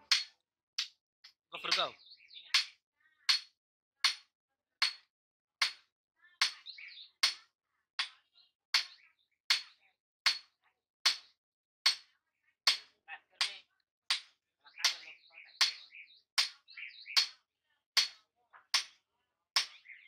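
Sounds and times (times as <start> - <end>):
hammer striking metal on anvil: 0.0 - 0.9, 8.8 - 12.1.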